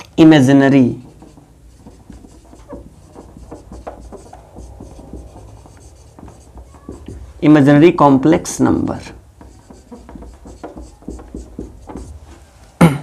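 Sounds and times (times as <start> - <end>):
marker squeaking on whiteboard: 0.4 - 12.6.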